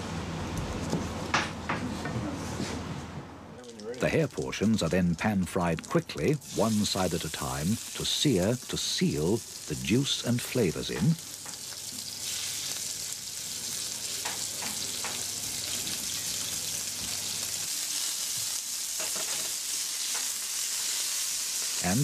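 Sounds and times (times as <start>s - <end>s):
meat sizzling in a frying pan: 5.8s - 22.0s.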